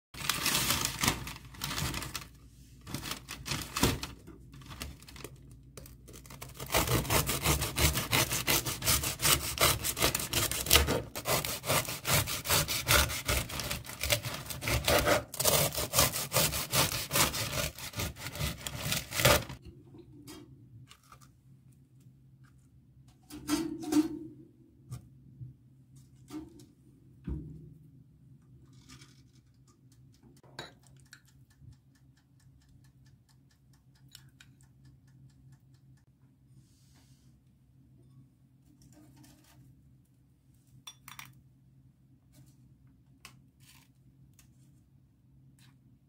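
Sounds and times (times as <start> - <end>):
paper bag rustling: 0.2 - 5.3
knife sawing through crusty bread: 6.6 - 19.6.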